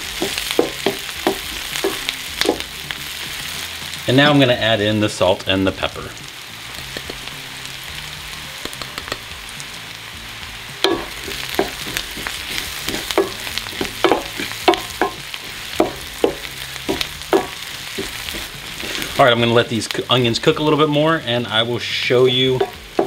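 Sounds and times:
onions sizzling in a pan: 0:00.0 - 0:23.0
wooden spatula scraping a pan: 0:11.0 - 0:19.3.

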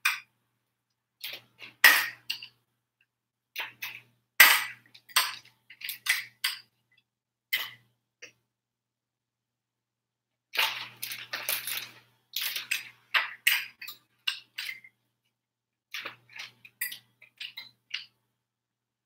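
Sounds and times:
plastic bag crinkling: 0:10.6 - 0:12.9.

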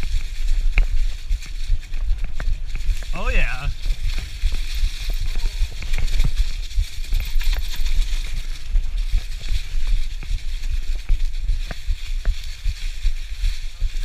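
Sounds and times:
tyres hissing over leaves: 0:00.0 - 0:06.2.

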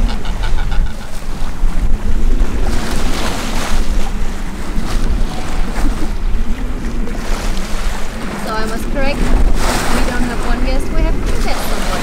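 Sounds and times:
sea rushing along hull: 0:00.0 - 0:12.0
wind buffeting microphone: 0:00.0 - 0:12.0.

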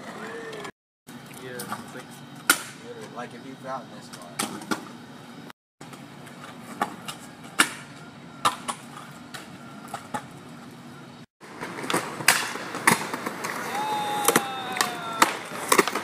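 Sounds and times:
scooter rolling on rough pavement: 0:08.7 - 0:13.7
scooter wheels clacking on concrete: 0:11.8 - 0:16.0.

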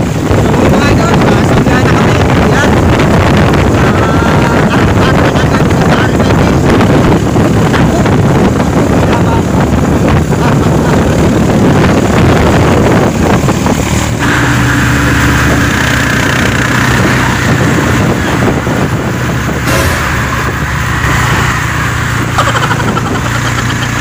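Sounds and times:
road noise: 0:00.0 - 0:24.0
vehicle engine hum: 0:00.0 - 0:24.0
air rushing past: 0:19.6 - 0:22.3.

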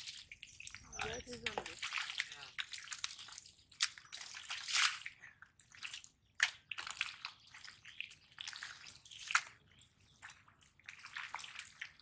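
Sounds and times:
hands squelching in mud: 0:00.0 - 0:12.0.

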